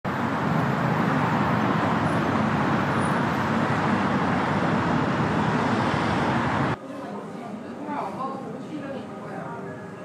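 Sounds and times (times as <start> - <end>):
road traffic rumble: 0.1 - 6.8.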